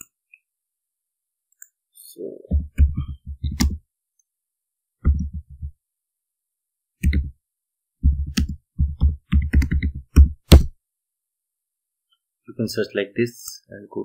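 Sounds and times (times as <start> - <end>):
typing on computer keyboard: 8.2 - 10.6.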